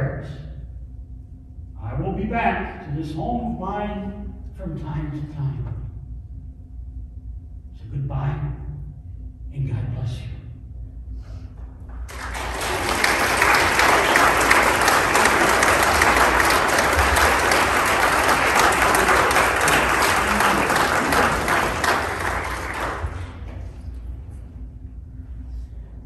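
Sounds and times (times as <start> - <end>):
congregation applauding: 12.1 - 23.9.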